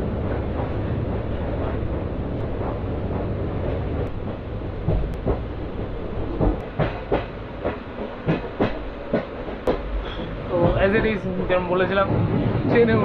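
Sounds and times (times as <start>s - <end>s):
low train carriage rumble: 0.0s - 13.0s
sharp clacks and knocks: 6.3s - 11.3s.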